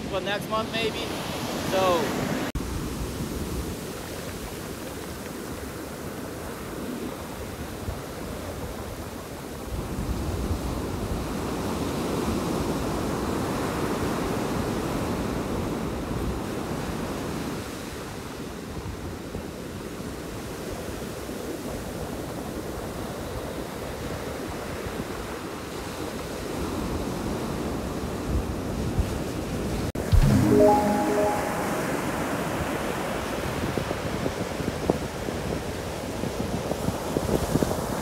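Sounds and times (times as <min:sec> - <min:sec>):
waves washing on beach: 0:00.6 - 0:09.9.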